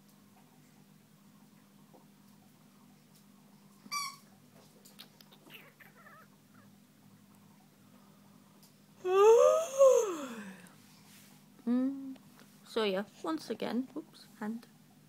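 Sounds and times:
squeaky dog toy: 3.9 - 4.3.

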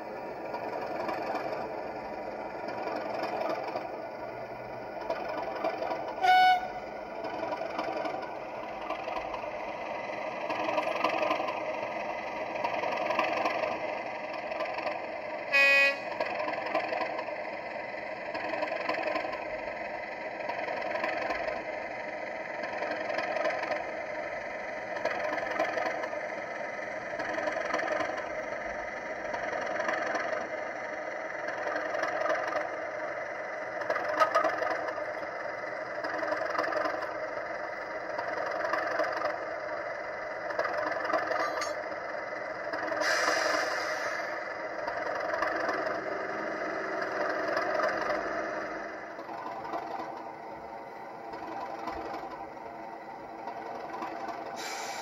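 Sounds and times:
model locomotive diesel engine: 0.0 - 55.0
short loud horn blast: 6.2 - 6.8, 15.5 - 16.1.

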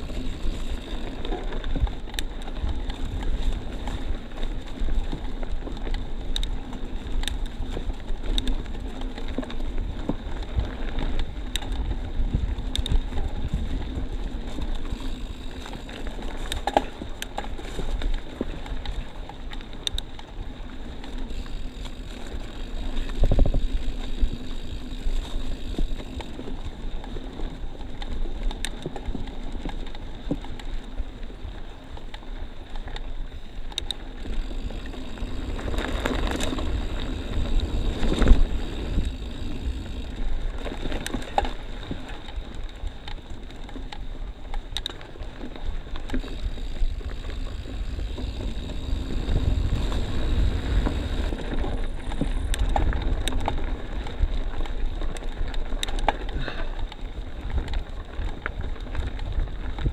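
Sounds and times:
bike rattles and knocks: 0.0 - 59.9
bike tyre rumble on dirt: 0.0 - 59.9
wind buffeting microphone: 33.3 - 43.0, 46.2 - 54.8, 55.6 - 59.9.

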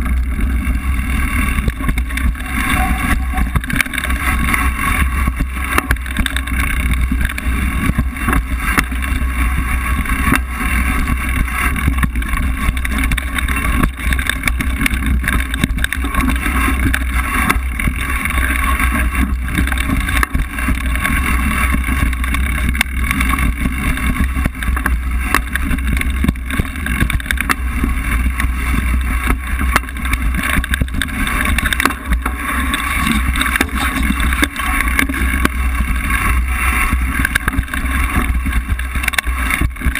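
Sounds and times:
bike rattling and knocking: 0.0 - 39.9
wind rush on microphone: 0.0 - 39.9.

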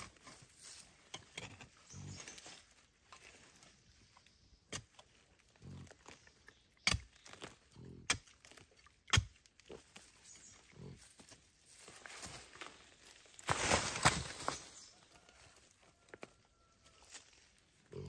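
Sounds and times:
hand hoe chopping soil: 4.7 - 5.1, 6.8 - 9.8
dry leaves rustling: 11.1 - 18.0.

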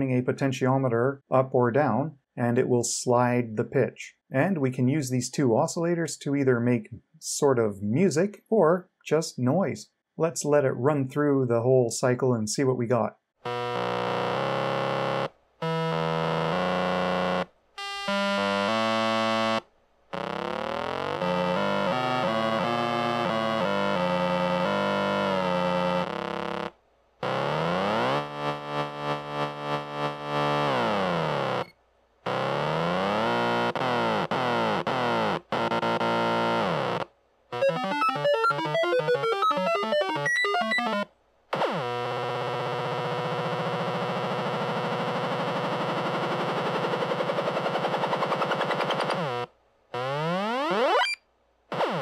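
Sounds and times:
buzzy square-wave tones: 13.4 - 52.0
rapid random-pitch beeps: 37.6 - 41.0.

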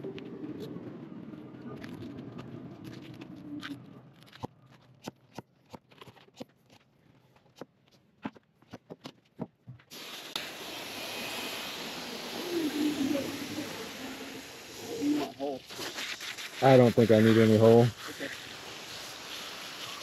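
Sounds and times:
water spraying from hose nozzle: 9.9 - 20.0.

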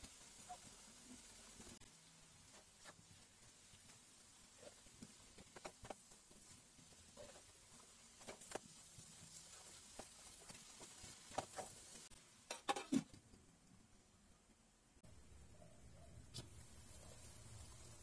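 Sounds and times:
faint sizzle: 0.0 - 18.0
spatula scraping a wok: 4.4 - 12.8.

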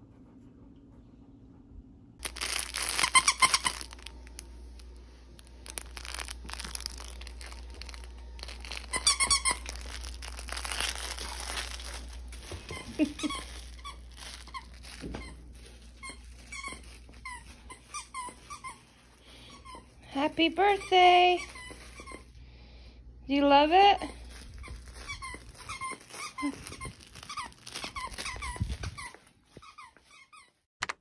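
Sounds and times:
crinkling and rustling: 2.2 - 22.3, 24.1 - 29.9
squeaky dog toy squeaking: 2.3 - 4.1, 5.7 - 15.4, 16.0 - 18.9, 19.6 - 22.3, 24.5 - 30.6.

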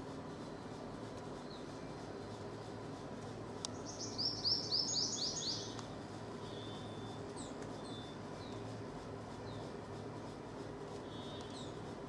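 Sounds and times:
faint bird chirps: 3.7 - 5.8, 6.4 - 8.7, 11.0 - 11.8.

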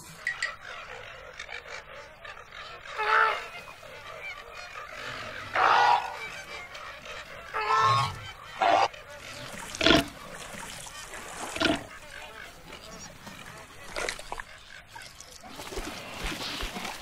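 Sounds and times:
flamingos honking: 0.1 - 10.4.

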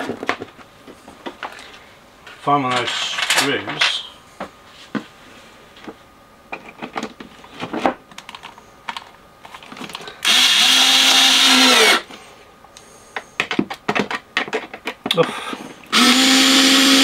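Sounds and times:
cordless drill driving a screw: 10.2 - 12.0, 15.9 - 17.0
handling clicks and knocks: 13.2 - 15.2.

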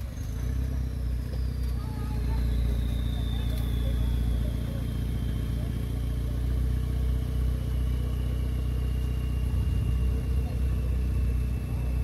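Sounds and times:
vehicle engine running at low revs: 0.0 - 12.0.

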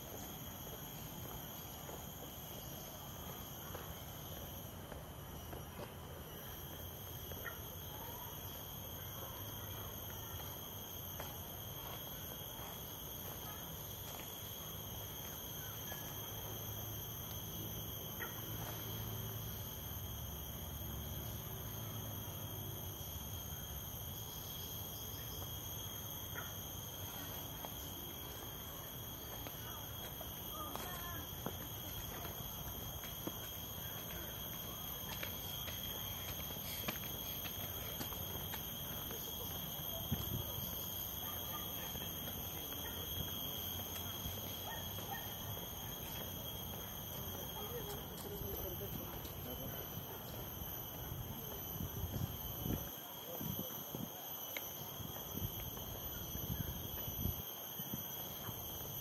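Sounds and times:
high-pitched insect drone: 0.0 - 59.0.

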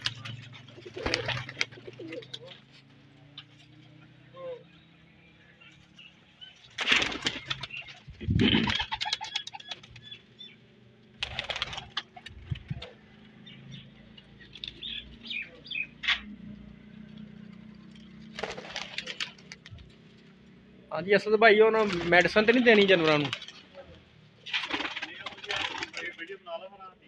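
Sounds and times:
pigeons flapping wings: 0.0 - 2.7, 6.6 - 10.2, 11.2 - 13.2, 17.4 - 20.0, 21.8 - 26.3.

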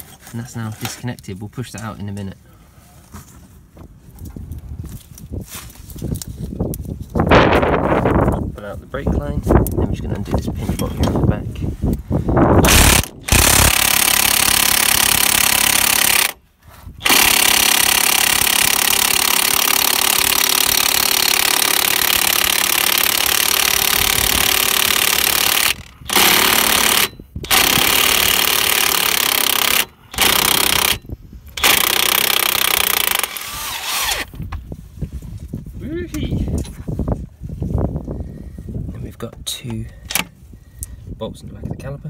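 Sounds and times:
impact wrench hammering: 12.6 - 16.4, 17.0 - 33.4.

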